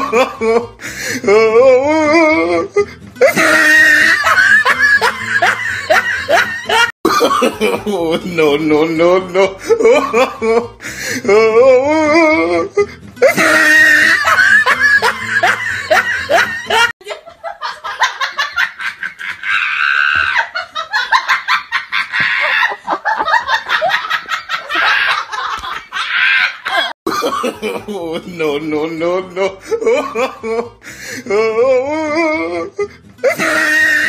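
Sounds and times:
person laughing: 0.0 - 34.0
different laugh: 2.5 - 8.2, 12.3 - 28.1, 32.8 - 34.0.

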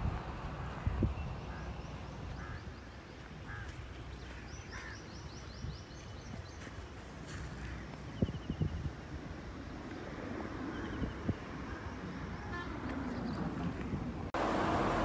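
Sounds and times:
steady low rumble: 0.0 - 4.5
birds chirping and trilling: 0.9 - 8.9.

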